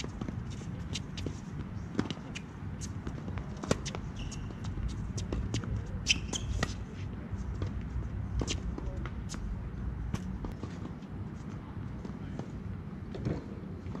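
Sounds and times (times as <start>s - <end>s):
sneakers squeaking: 0.0s - 9.5s.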